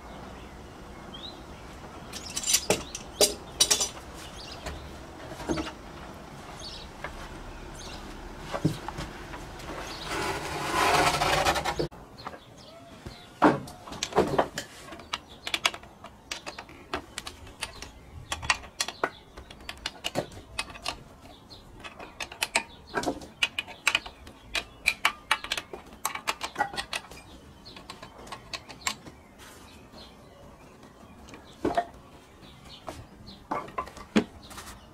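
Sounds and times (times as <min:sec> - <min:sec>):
wooden board scraping: 0:04.0 - 0:11.9.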